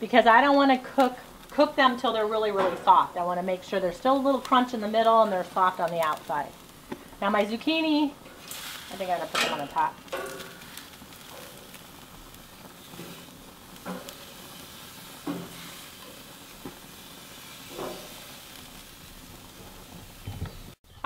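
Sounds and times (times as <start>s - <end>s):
vegetables sizzling on grill: 0.0s - 20.8s
metal tongs clinking on grates: 8.4s - 11.7s.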